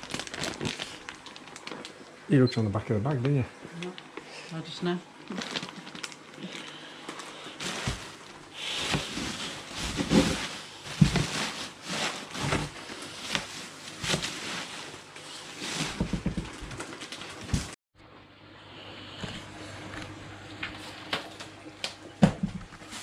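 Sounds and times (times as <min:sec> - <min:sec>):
plastic bags crinkling: 0:00.0 - 0:02.1, 0:05.2 - 0:17.6.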